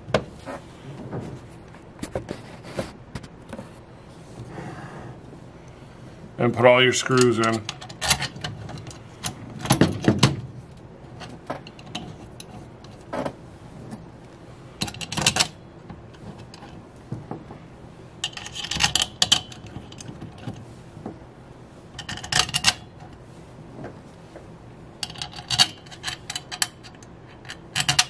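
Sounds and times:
small screws clicking and rattling: 0:25.0 - 0:28.0.

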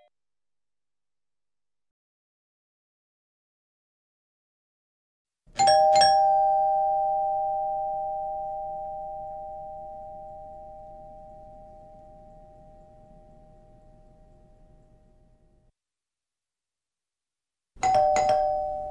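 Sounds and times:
doorbell chime ringing: 0:05.6 - 0:12.9, 0:17.8 - 0:18.9.

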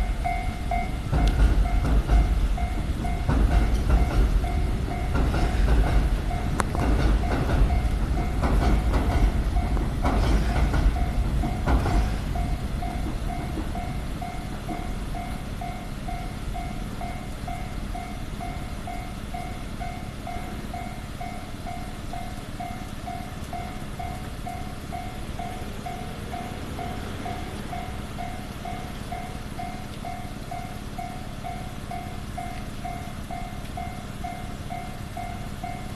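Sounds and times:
wheels knocking over rail joints: 0:00.0 - 0:15.3
level crossing alarm ringing: 0:00.0 - 0:35.9
train rumbling past: 0:00.0 - 0:35.9.

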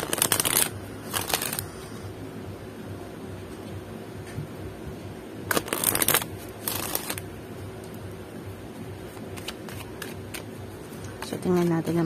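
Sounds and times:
cards riffling: 0:00.0 - 0:01.8, 0:05.5 - 0:07.2, 0:09.1 - 0:11.3.

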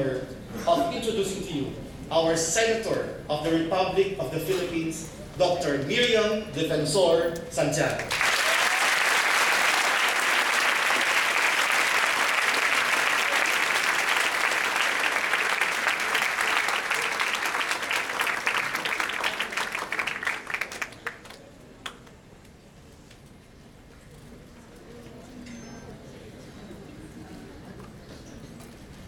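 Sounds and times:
audience applauding: 0:08.1 - 0:22.1.

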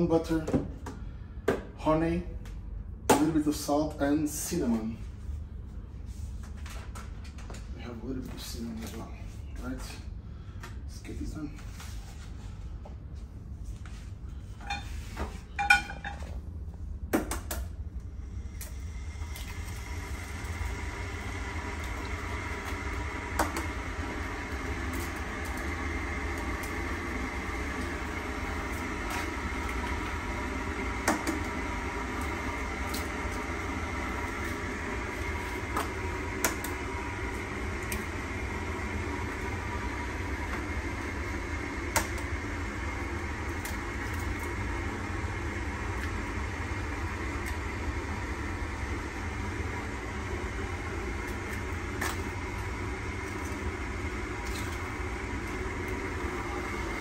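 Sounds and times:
kitchen appliance motor humming: 0:18.3 - 0:57.0.

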